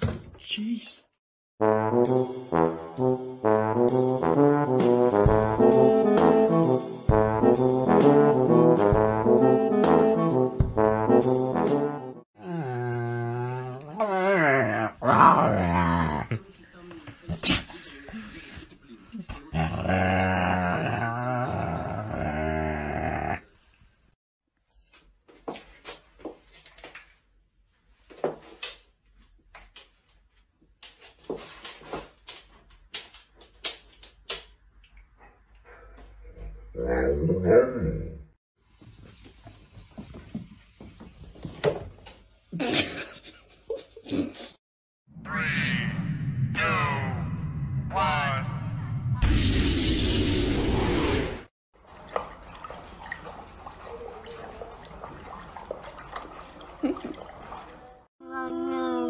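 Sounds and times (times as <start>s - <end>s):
water dripping: 51.8s - 58.0s
horse lapping water: 51.8s - 58.1s.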